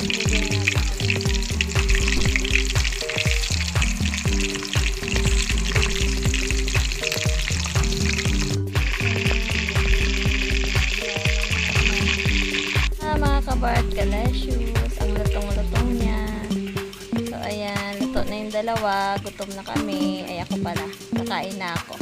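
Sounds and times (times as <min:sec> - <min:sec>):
chicken frying in hot oil: 0:00.0 - 0:13.0
background music: 0:00.0 - 0:22.0.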